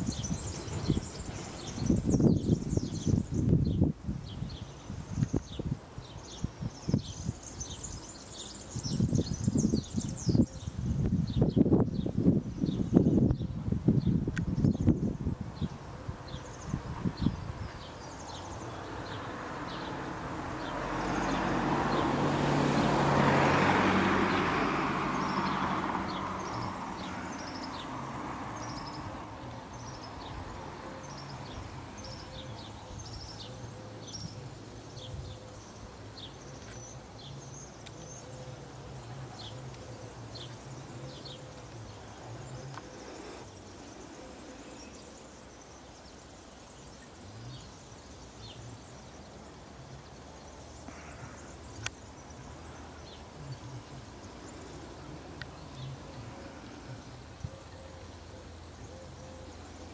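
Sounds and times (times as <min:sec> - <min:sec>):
bird chirping: 0:00.0 - 0:22.2, 0:24.3 - 0:59.9
low engine hum: 0:16.6 - 0:45.0, 0:47.2 - 0:59.9
vehicle passing by: 0:18.1 - 0:45.1, 0:48.4 - 0:59.9.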